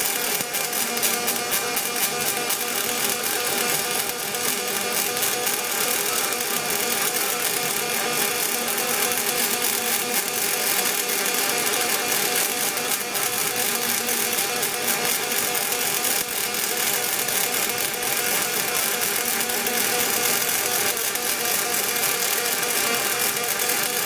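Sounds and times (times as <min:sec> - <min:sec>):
welding arc buzzing crackle: 0:00.0 - 0:24.0.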